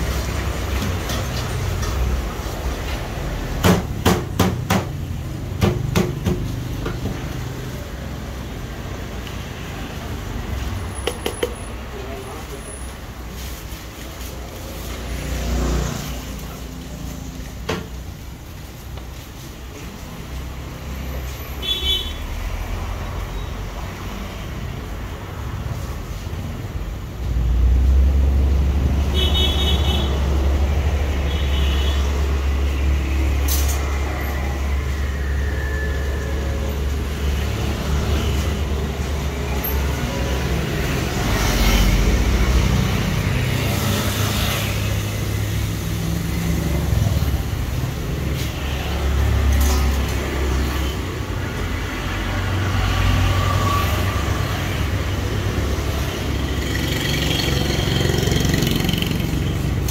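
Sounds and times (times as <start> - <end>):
traffic engine rumble: 0.0 - 59.9
vehicle horn beeping: 29.1 - 30.2, 31.3 - 32.1.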